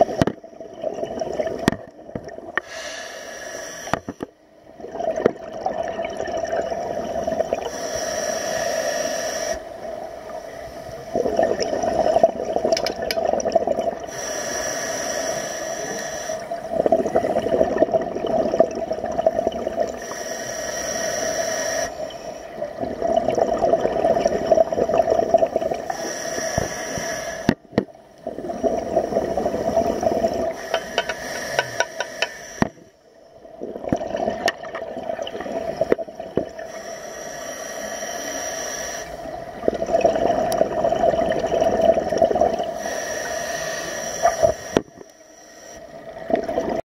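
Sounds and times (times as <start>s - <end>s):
bubbling exhale: 2.5s - 27.6s, 28.2s - 33.0s, 33.6s - 46.8s
hissing regulator inhale: 2.6s - 4.4s, 7.6s - 12.3s, 14.0s - 17.7s, 19.9s - 22.6s, 25.6s - 33.1s, 35.5s - 39.6s, 42.5s - 46.1s.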